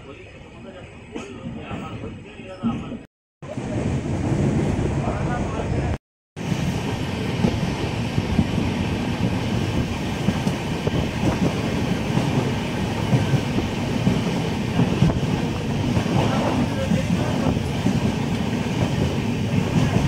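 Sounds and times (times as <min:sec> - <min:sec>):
train wheels rumbling: 0:03.5 - 0:20.0.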